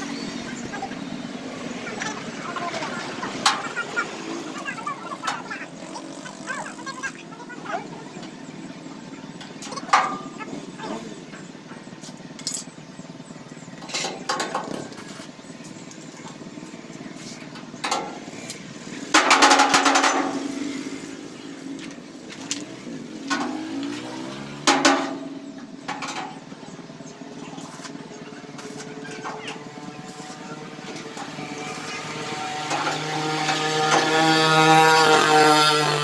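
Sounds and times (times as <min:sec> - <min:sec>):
sheet metal knocks and clanks: 0:19.2 - 0:20.5, 0:24.6 - 0:26.4.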